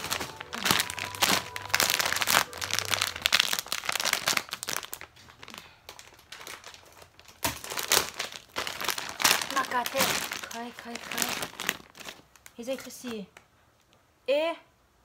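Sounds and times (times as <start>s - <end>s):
plastic packaging crinkling: 0.0s - 13.4s.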